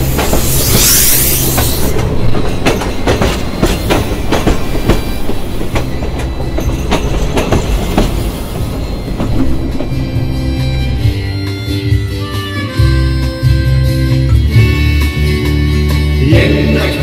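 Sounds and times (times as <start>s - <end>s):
train wheels clicking over rail joints: 0.0s - 11.6s
low rumble of train: 0.0s - 17.0s.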